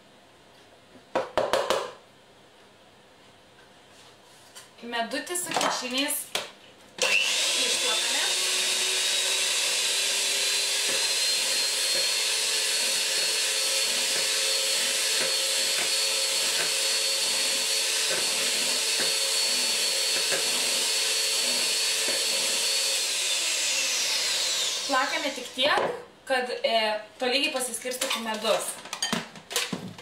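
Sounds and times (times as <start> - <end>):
electric hand mixer whining: 7.0 - 25.8.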